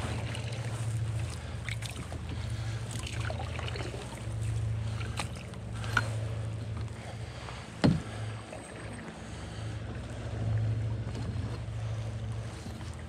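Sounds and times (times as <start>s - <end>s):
short splashes: 0.0s - 6.4s
river low rumble: 0.0s - 13.0s
water rushing around canoe: 0.0s - 13.0s.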